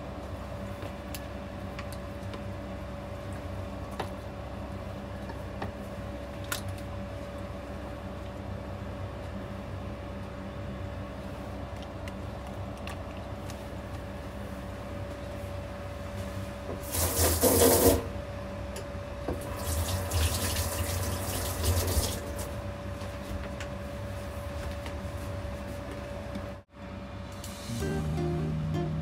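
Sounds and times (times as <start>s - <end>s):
steady low hum: 0.0s - 17.0s, 22.1s - 29.0s
water running from a tap: 19.4s - 22.5s.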